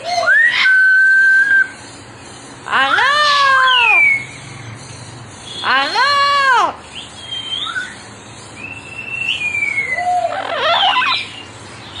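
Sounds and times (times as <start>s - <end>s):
parrot harsh squawk: 0.0s - 1.0s, 2.7s - 4.2s, 9.9s - 11.4s
parrot calling: 0.0s - 1.5s, 2.6s - 4.4s, 5.5s - 8.0s, 8.6s - 11.5s.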